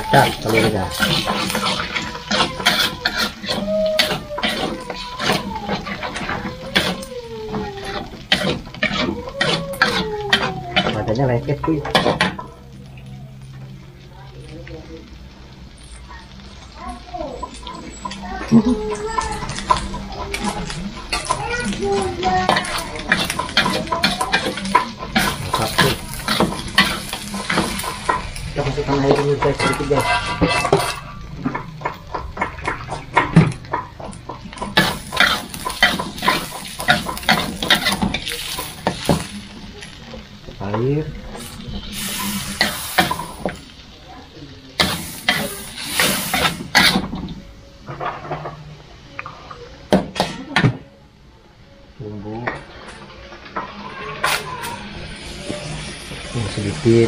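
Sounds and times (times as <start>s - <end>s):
metal spatula scraping wok: 0.0s - 13.6s, 17.4s - 44.0s, 44.8s - 48.7s
eggs sizzling in oil: 0.0s - 57.0s.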